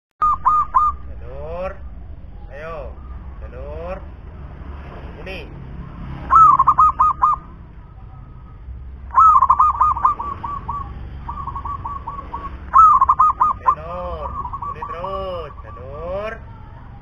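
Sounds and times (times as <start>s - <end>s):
dove cooing: 0.2s - 1.1s, 6.3s - 16.2s.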